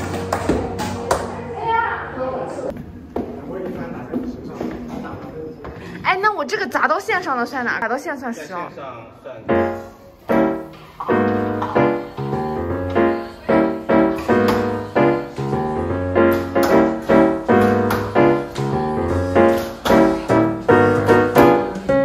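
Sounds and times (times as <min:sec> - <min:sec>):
piano music: 0:00.0 - 0:02.7, 0:09.4 - 0:22.0.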